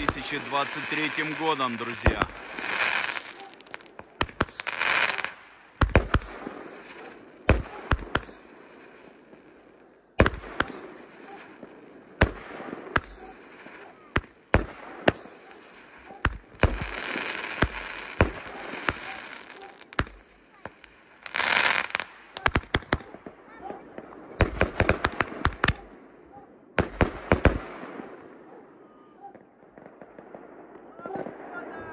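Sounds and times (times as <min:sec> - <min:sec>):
fireworks bangs: 0:00.0 - 0:26.0, 0:26.8 - 0:28.4, 0:29.3 - 0:31.7.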